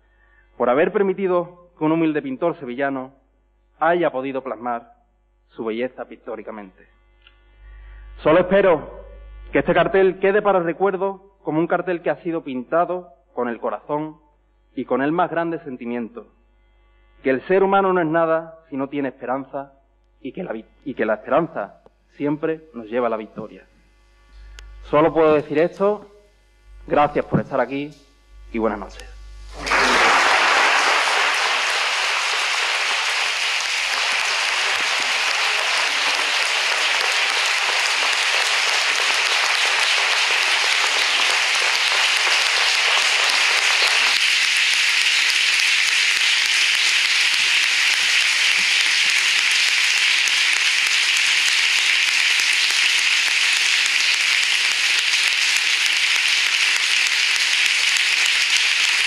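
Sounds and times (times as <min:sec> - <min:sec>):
crowd applauding: 0:29.5 - 0:59.0.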